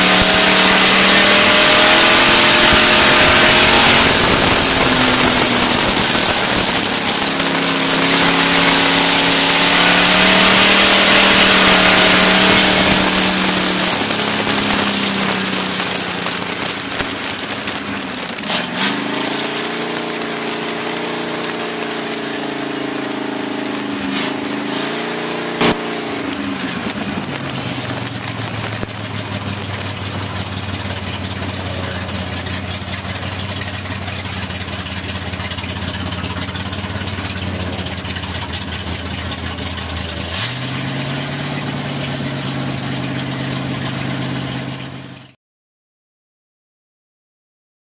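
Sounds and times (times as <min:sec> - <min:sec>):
race car engine: 0:00.0 - 0:45.4.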